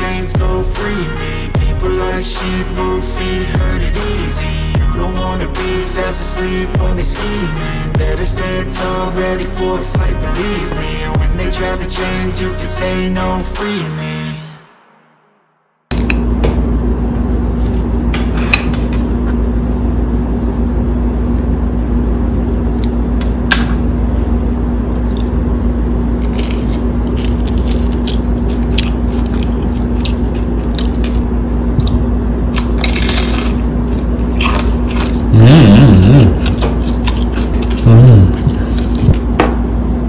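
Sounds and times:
electrical hum: 0:00.0 - 0:14.6, 0:15.9 - 0:40.0
crunchy food chewing: 0:26.2 - 0:39.2
low voice sound: 0:35.3 - 0:36.6, 0:37.6 - 0:38.8.

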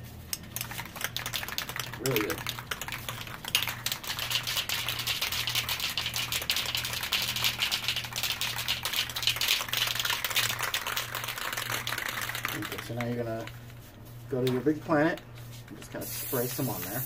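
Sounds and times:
spray can ball rattling: 0:00.4 - 0:13.8, 0:16.0 - 0:17.0.

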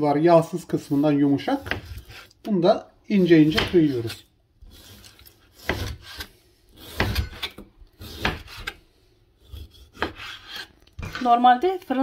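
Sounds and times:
knife scraping cutting board: 0:00.8 - 0:02.4, 0:03.2 - 0:12.0
knife slicing raw meat: 0:03.3 - 0:08.8, 0:09.4 - 0:11.3.

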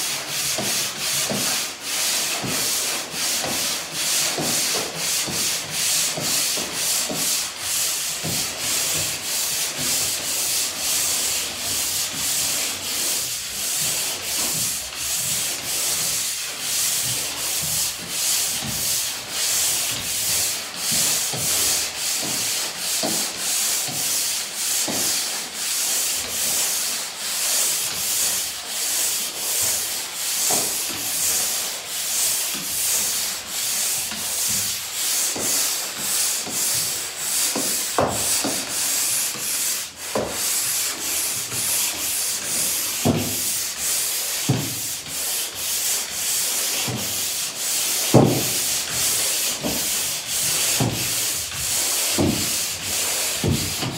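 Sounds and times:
pole sander scratching wall: 0:00.0 - 0:53.9.

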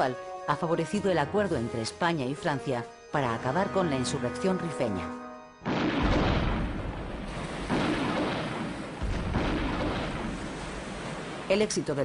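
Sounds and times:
artillery booms: 0:05.6 - 0:11.8.

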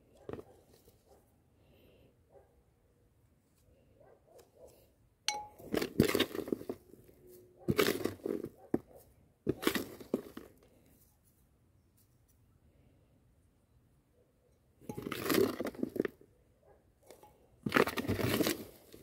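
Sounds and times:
spoon clinking on ceramic pot: 0:05.3 - 0:05.7
spoon scraping soil: 0:05.3 - 0:11.1, 0:14.8 - 0:16.2, 0:17.1 - 0:19.0.

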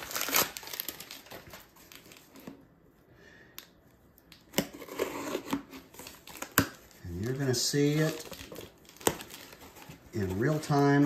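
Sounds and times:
knife cutting packing tape: 0:04.5 - 0:06.8
paper handled: 0:05.9 - 0:11.0.

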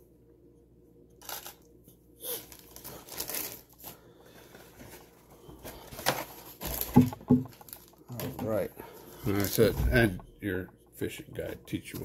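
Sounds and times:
packaging rustling and crinkling: 0:02.3 - 0:09.7.

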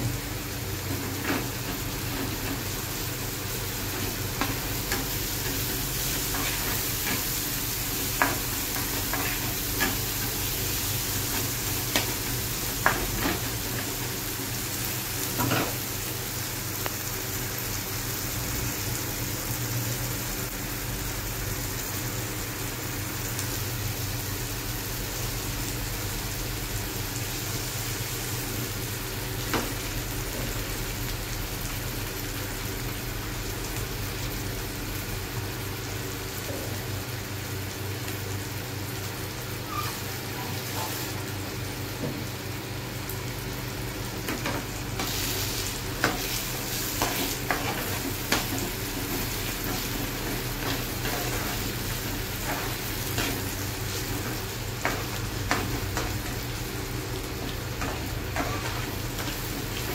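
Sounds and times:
masala sizzling in a pan: 0:00.0 - 0:59.9.

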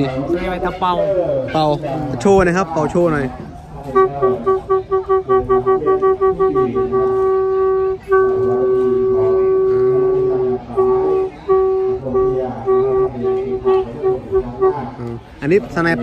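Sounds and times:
horn trumpet blasts and toots: 0:03.8 - 0:16.0.

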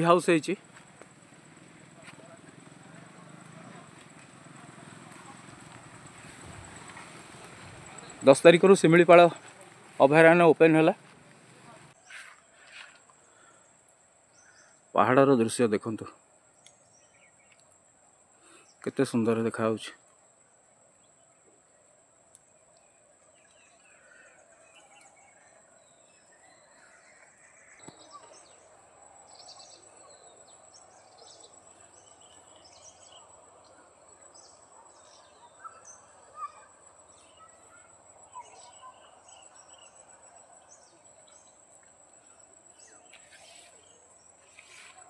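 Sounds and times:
high insect drone: 0:00.0 - 0:11.6, 0:23.4 - 0:45.0
bird chirps: 0:16.5 - 0:17.8, 0:22.4 - 0:45.0.

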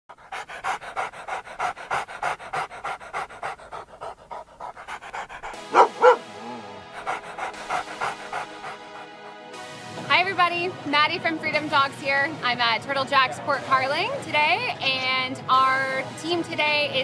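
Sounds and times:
dog panting: 0:00.1 - 0:09.5
light music: 0:00.2 - 0:17.0
dog barking: 0:05.6 - 0:06.2.

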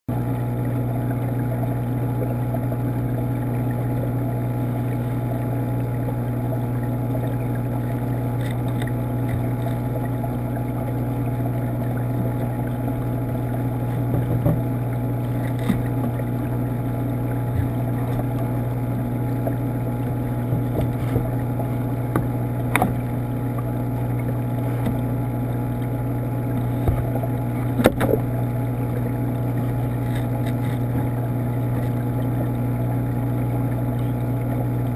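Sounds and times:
aquarium pump humming: 0:00.1 - 0:34.9.

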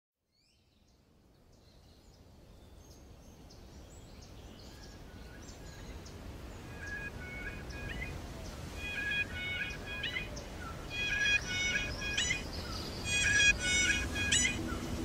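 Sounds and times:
birds chirping: 0:05.4 - 0:15.0
low outdoor rumble: 0:11.4 - 0:15.0.

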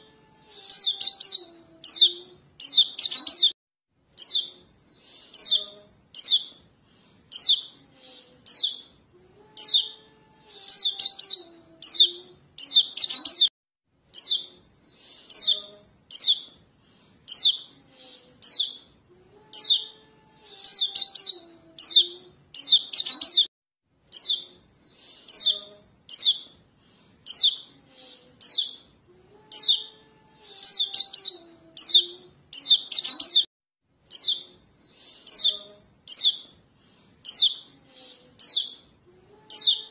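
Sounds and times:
young birds begging chirps: 0:00.5 - 0:03.6, 0:04.2 - 0:06.6, 0:07.3 - 0:08.9, 0:09.6 - 0:13.5, 0:14.2 - 0:16.5, 0:17.3 - 0:18.9, 0:19.6 - 0:23.5, 0:24.1 - 0:26.5, 0:27.3 - 0:28.9, 0:29.5 - 0:33.5, 0:34.1 - 0:36.5, 0:37.2 - 0:38.8, 0:39.5 - 0:39.9.

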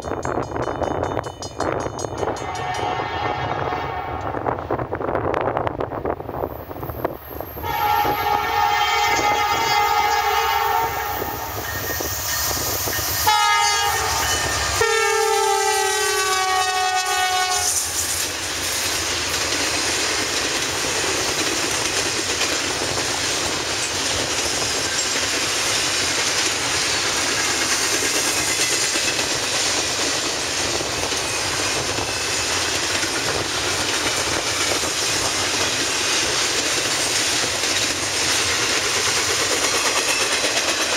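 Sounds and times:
train wheels on rails: 0:00.0 - 0:40.9
locomotive air horn blasts: 0:02.4 - 0:04.4, 0:07.6 - 0:11.6, 0:13.2 - 0:17.9.

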